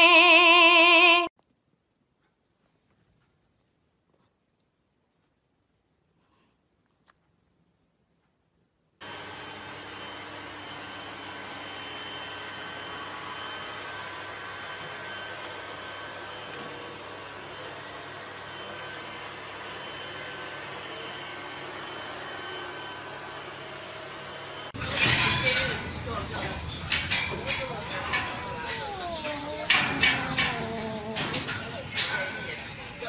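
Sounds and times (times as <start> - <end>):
robot vacuum cleaner whirring: 9.0 - 24.8.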